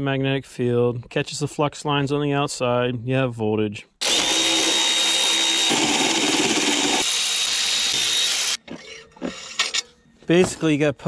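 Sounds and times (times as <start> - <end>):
electric ratchet motor whine: 4.0 - 8.6.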